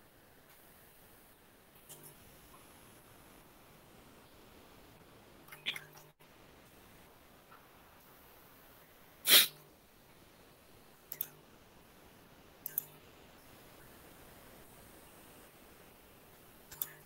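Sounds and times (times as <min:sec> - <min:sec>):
faint double clicks: 0:11.1 - 0:11.4, 0:12.6 - 0:13.0.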